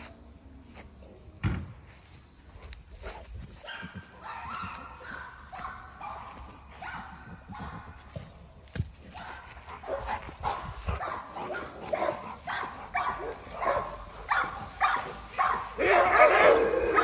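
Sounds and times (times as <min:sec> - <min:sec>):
dogs barking and yipping: 0:03.0 - 0:08.3, 0:09.0 - 0:17.0.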